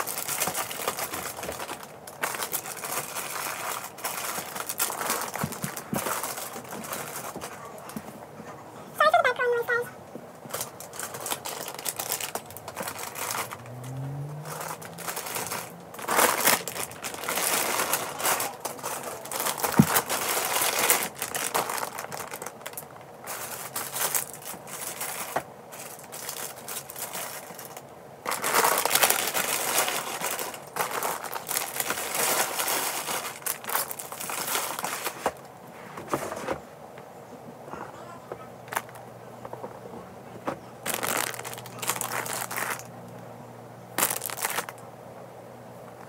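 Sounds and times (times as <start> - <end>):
plastic packaging crinkling: 0.0 - 8.0, 10.5 - 35.5, 38.7 - 39.0, 40.8 - 43.2, 44.0 - 44.8.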